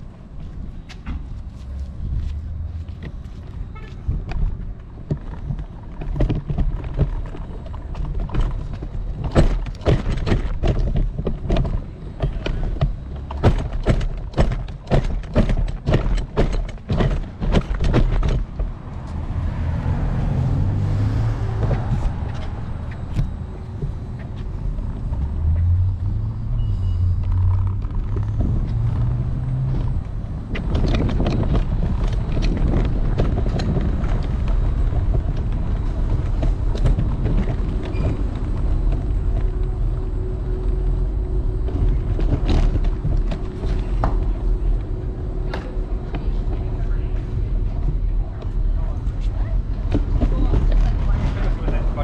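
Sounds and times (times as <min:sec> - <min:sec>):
steady rumble with low hum: 0:00.0 - 0:52.0
scooter knocking and rattling on steps: 0:02.9 - 0:18.8, 0:27.4 - 0:52.0.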